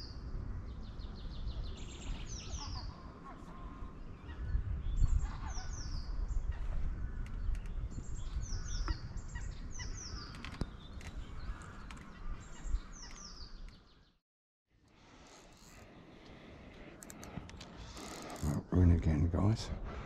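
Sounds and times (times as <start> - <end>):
wind rumbling on microphone: 0.0 - 14.1
birds calling: 0.0 - 14.2.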